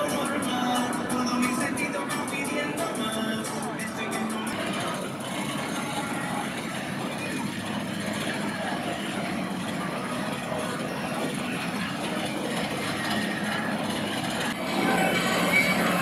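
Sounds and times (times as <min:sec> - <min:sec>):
roller coaster wheels rumbling: 0:04.5 - 0:16.0.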